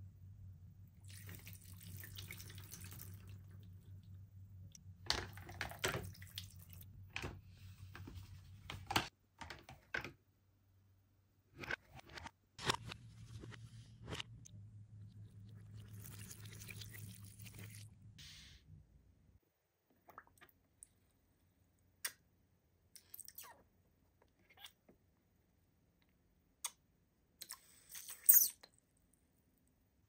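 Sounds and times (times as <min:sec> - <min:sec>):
water trickling and dripping: 0:01.0 - 0:04.0.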